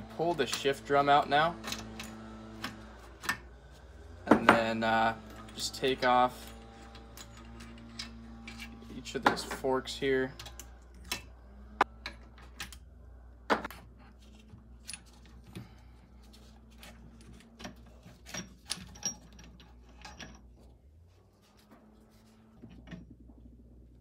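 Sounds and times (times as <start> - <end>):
metal gears clinking: 16.8 - 20.6
metal parts knocking together: 17.1 - 20.5.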